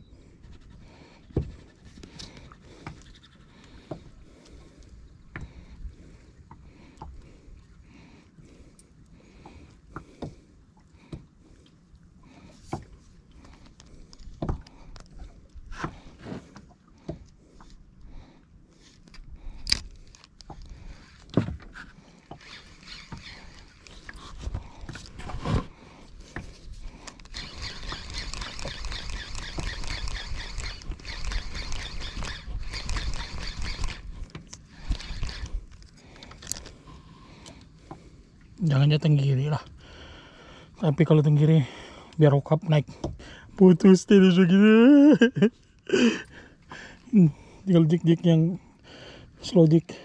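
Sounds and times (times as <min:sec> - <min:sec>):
fishing reel clattering: 0:22.3 - 0:24.2, 0:27.0 - 0:36.8.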